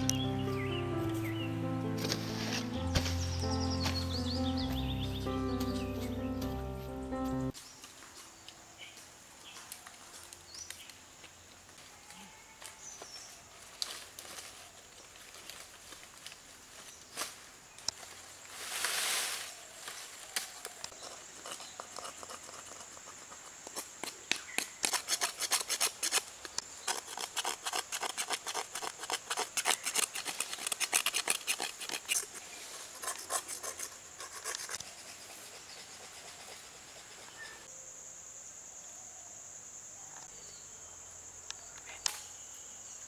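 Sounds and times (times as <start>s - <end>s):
machete scraping coconut shell: 20.9s - 34.8s.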